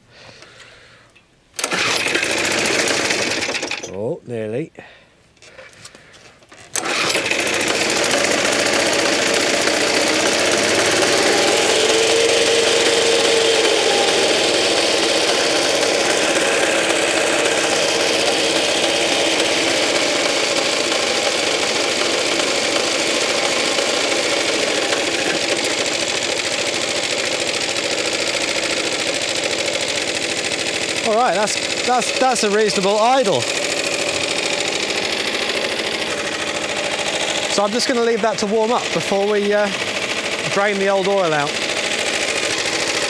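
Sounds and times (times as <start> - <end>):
lawn mower pull-start: 1.5 - 4.0, 5.4 - 43.0
lawn mower engine running: 1.6 - 4.1, 6.4 - 43.0.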